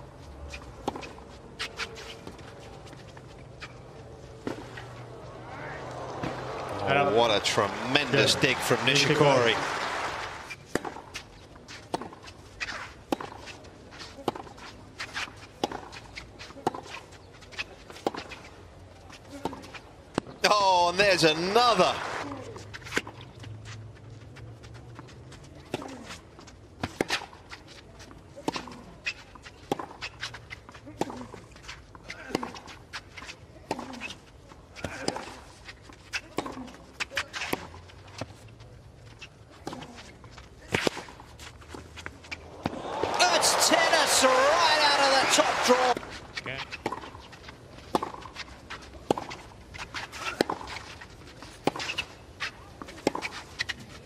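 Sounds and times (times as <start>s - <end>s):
tennis ball struck by racquets: 42.4s - 46.1s.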